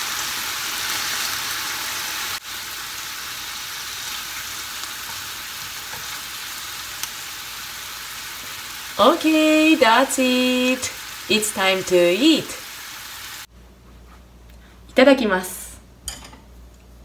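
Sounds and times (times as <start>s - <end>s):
food sizzling in frying pan: 0.0s - 13.5s.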